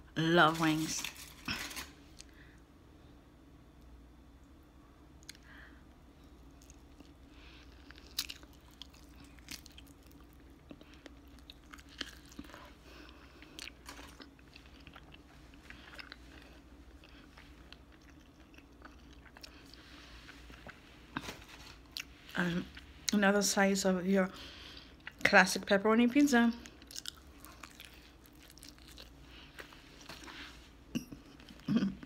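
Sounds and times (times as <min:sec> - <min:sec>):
chewing with small crunches: 0:06.2 - 0:23.2, 0:24.5 - 0:25.4, 0:26.6 - 0:32.0.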